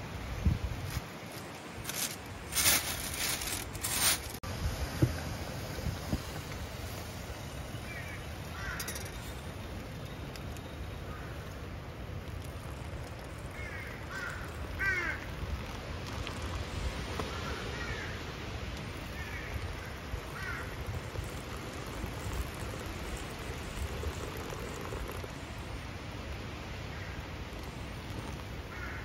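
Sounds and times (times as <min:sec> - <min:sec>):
crows cawing: 0:08.5 - 0:09.2, 0:13.5 - 0:15.4, 0:17.3 - 0:18.2, 0:19.1 - 0:20.9, 0:28.7 - 0:29.0.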